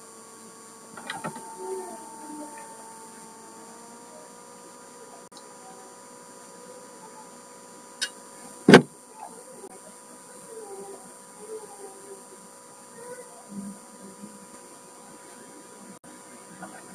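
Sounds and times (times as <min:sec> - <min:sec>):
electrical hum: 0:00.0 - 0:16.9.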